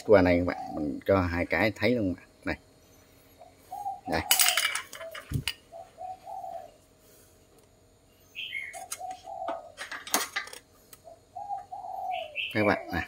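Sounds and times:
dove cooing: 0.0s - 1.3s, 3.3s - 7.0s, 8.4s - 13.0s
higher bird chirp: 2.8s - 6.9s, 8.0s - 9.8s, 11.0s - 13.0s.

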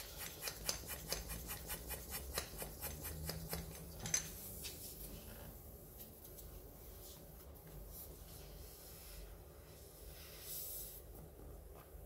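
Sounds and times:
hand tool scratching rubber tube: 0.0s - 3.8s.

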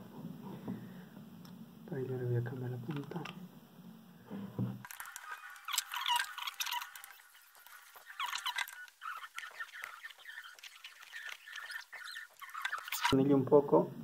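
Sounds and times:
screwdriver squeaking: 4.8s - 13.2s.

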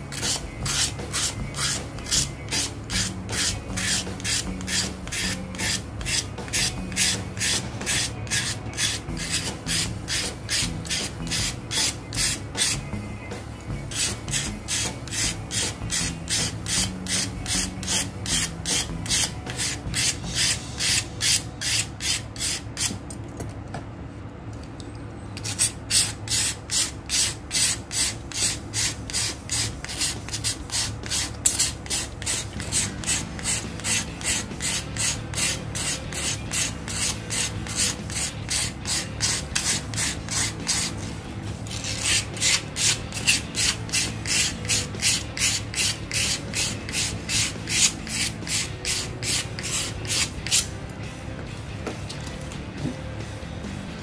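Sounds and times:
sandpaper rasping on steel blade: 0.1s - 12.9s, 13.8s - 23.0s, 25.4s - 50.7s.

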